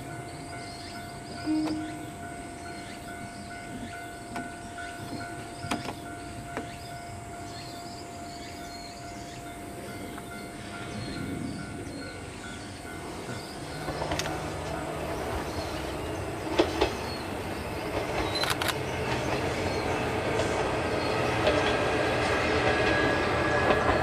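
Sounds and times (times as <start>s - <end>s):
steady high tone: 0.0s - 4.9s
distant diesel railcar rumble: 0.0s - 24.0s
sharp clicks: 18.2s - 18.8s.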